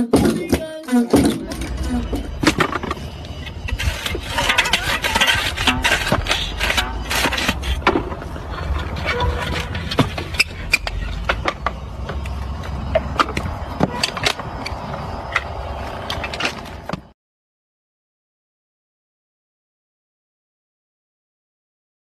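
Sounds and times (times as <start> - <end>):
soil scraping: 1.4 - 17.0.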